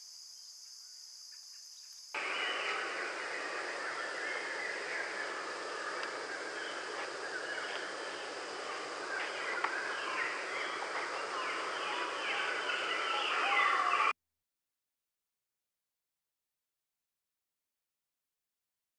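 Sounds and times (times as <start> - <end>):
steady outdoor hiss: 0.0 - 14.1
songbirds chirping: 0.3 - 14.1.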